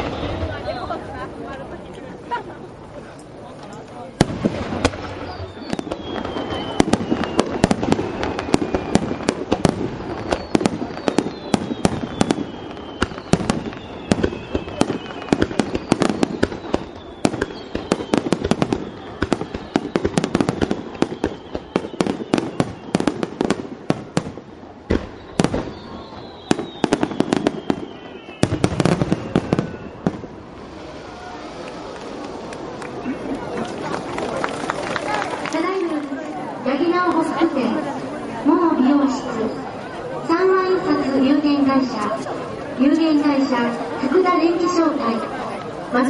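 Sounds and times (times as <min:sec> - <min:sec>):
firework whistles falling in pitch: 0:04.8 - 0:24.3, 0:24.9 - 0:32.2.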